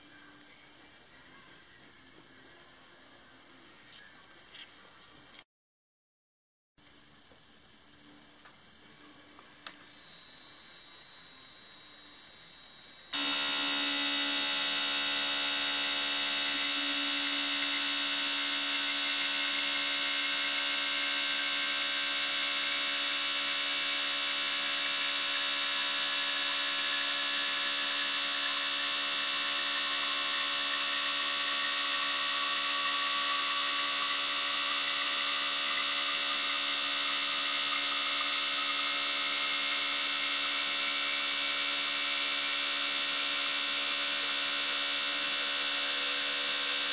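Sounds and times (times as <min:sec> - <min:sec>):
fuel injectors buzzing: 0:13.1 - 0:46.9.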